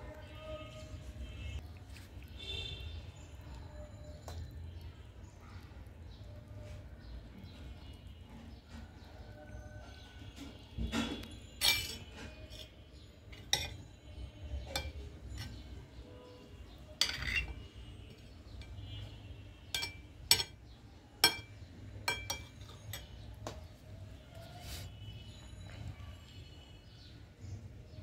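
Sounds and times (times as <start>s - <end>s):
spoon clinking on ceramic plate: 11.0s - 13.9s, 14.6s - 15.7s, 17.0s - 17.8s, 19.7s - 23.2s.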